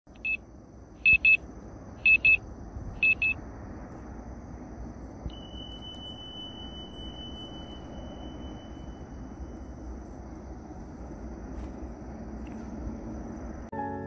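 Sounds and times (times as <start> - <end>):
long steady high beep: 1.0 - 1.4, 2.0 - 2.4, 3.0 - 3.4, 5.3 - 10.4
electronic beeps: 1.1 - 1.4, 2.0 - 2.4, 3.0 - 3.4, 5.3 - 9.9.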